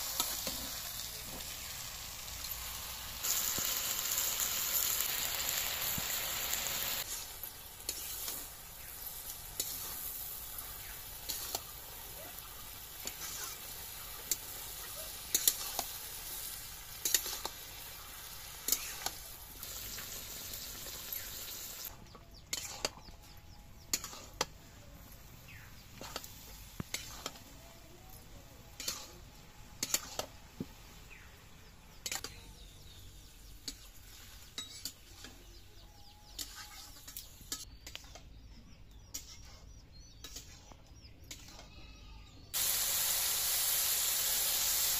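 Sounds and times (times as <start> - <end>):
greens sizzling in a pan: 0.0 - 23.0, 23.9 - 24.5, 25.1 - 27.6, 28.5 - 35.4, 42.5 - 44.9
spatula scraping and clicking on pan: 7.0 - 8.9, 9.6 - 11.7, 13.0 - 13.6, 15.3 - 15.9, 17.0 - 17.6, 18.6 - 19.2, 22.3 - 23.1, 23.8 - 24.6, 25.9 - 27.5, 28.8 - 29.2, 29.8 - 30.4, 31.9 - 32.4, 34.5 - 35.5, 39.1 - 41.8.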